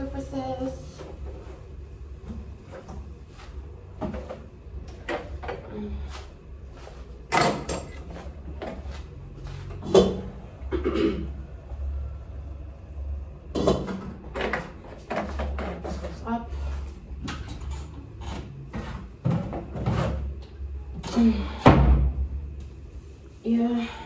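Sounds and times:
steady low hum: 0.0 - 24.0
kitchen items knocking and clicking: 7.3 - 8.8, 13.5 - 16.3.

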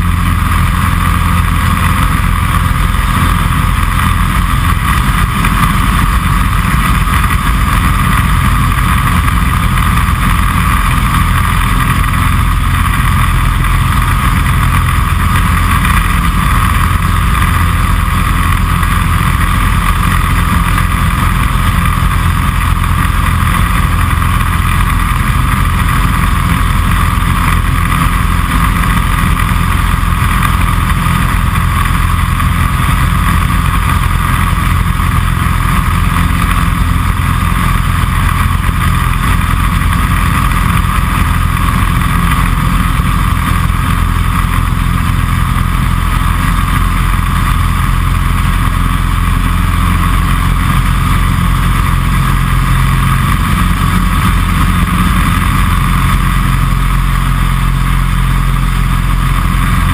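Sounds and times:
aircraft engine and propeller drone: 0.0 - 59.9.

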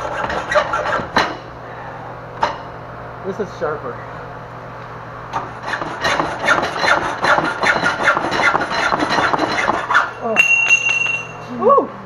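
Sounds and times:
hacksaw cutting steel tubing: 0.0 - 1.1, 5.6 - 10.1.

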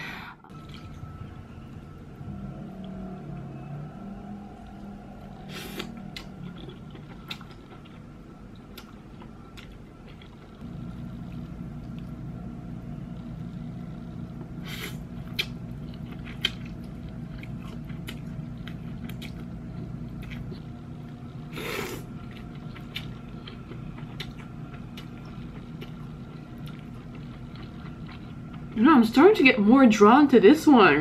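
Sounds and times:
steady low hum: 0.0 - 31.0
chewing: 5.4 - 12.2, 13.1 - 28.8.

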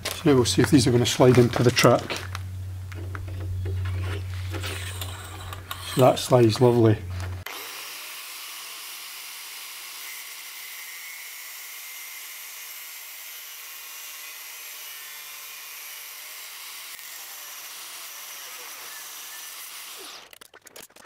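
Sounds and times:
angle grinder cutting steel: 3.8 - 20.3.

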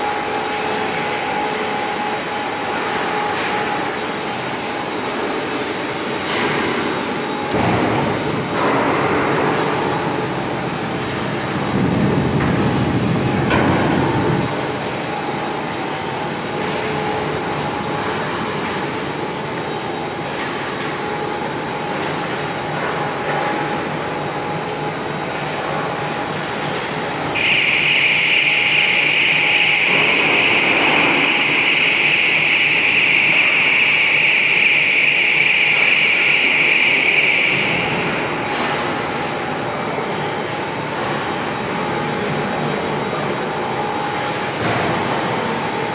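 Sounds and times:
machinery running: 0.0 - 45.9.

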